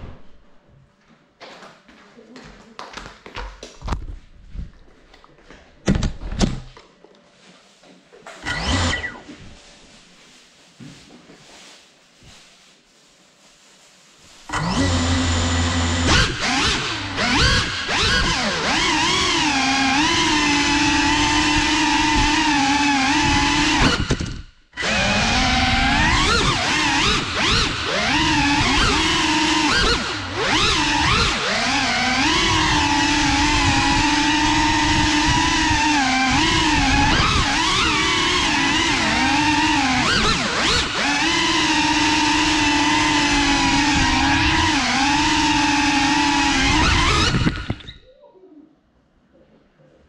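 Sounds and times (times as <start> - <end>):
drone motors whining: 8.4 - 9.4, 14.5 - 48.0.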